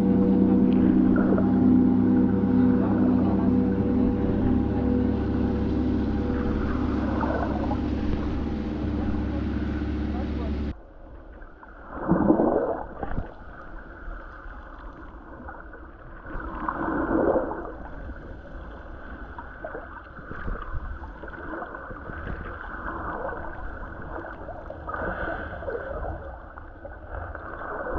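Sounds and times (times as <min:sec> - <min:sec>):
underwater gurgling and sloshing: 0:00.0 - 0:27.9.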